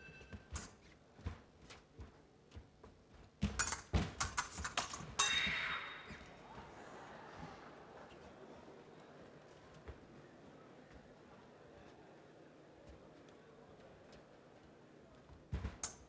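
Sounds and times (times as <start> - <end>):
fencing blades clashing: 0.0 - 0.9, 3.4 - 6.4, 15.8 - 16.0
fencing footwork steps: 0.0 - 6.8, 12.8 - 16.0.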